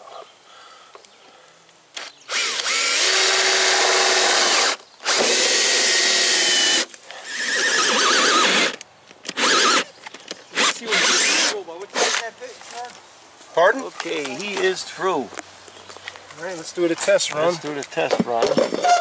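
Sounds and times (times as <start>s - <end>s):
cordless drill boring into wall: 2.3s - 9.9s, 10.6s - 12.2s.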